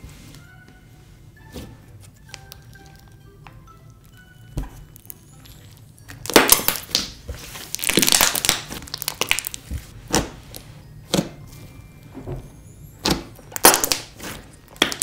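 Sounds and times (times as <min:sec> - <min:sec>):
slime popping and crackling: 0:02.2 - 0:11.3, 0:13.0 - 0:15.0.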